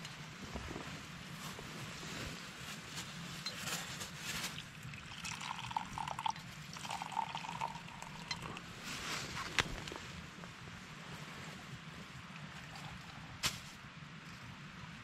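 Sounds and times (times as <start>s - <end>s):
liquid pouring into a mug: 4.6s - 8.7s.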